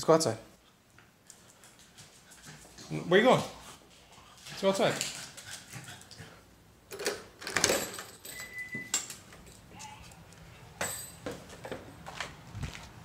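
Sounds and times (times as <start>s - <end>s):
footsteps: 8.8s - 13.0s
knocks and scuffs: 10.8s - 13.0s.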